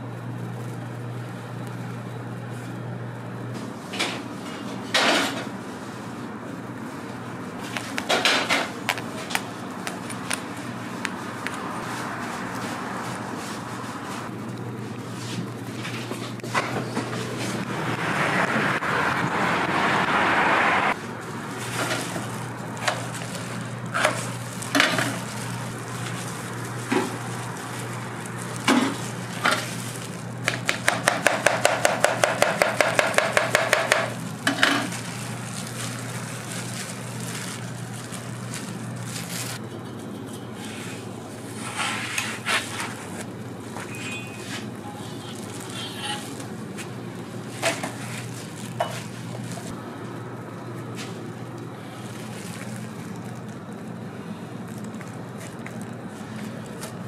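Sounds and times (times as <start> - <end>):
steady low hum: 20.9 - 57.0
metal spatula scraping griddle: 41.6 - 42.8, 43.9 - 46.3.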